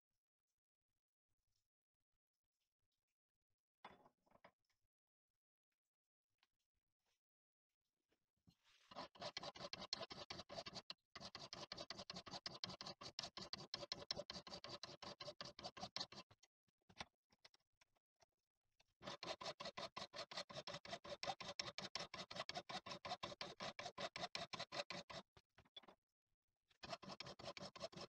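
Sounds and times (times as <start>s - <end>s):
hand file rasping on steel: 8.9s - 16.3s, 19.0s - 25.3s, 26.8s - 28.0s.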